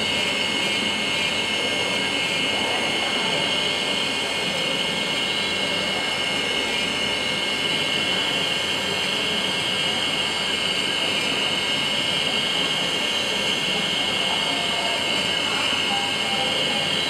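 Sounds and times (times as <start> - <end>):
milling machine spindle whine: 0.0 - 17.0.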